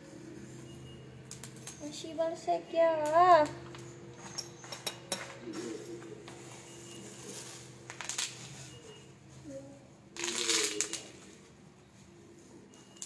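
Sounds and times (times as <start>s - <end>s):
plastic packaging crinkling: 7.3s - 9.0s, 10.1s - 11.5s.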